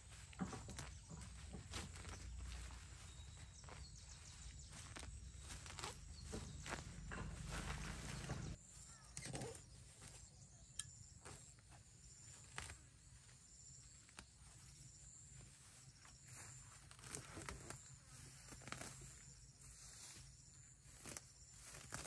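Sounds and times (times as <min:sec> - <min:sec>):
faint rustles: 0:00.0 - 0:10.3.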